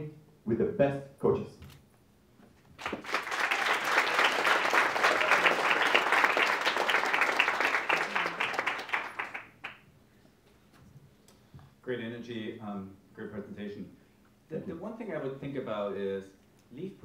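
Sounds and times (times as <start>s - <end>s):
audience applauding: 2.8s - 9.8s.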